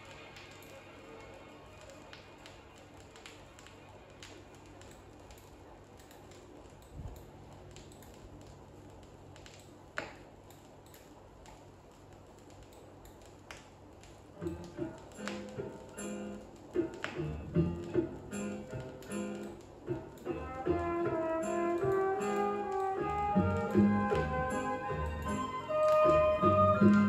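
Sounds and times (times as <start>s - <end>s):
vinyl crackle and pops: 0.0s - 27.0s
vinyl record surface noise: 0.0s - 27.0s
music track: 14.4s - 27.0s.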